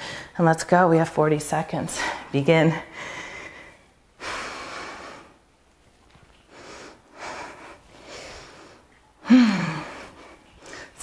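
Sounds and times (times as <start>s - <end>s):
woman breathing hard: 2.9s - 5.4s, 6.5s - 11.0s.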